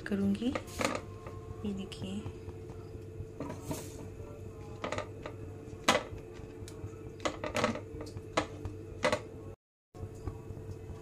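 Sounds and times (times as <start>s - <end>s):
steady low hum: 0.0s - 11.0s
berries knocking into metal saucepan: 4.8s - 6.4s, 7.2s - 9.3s.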